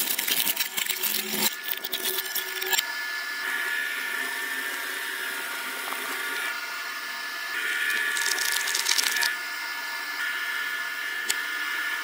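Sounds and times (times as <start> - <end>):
shredder motor whine: 1.2 - 12.0
plastic crackling in shredder: 7.9 - 9.3.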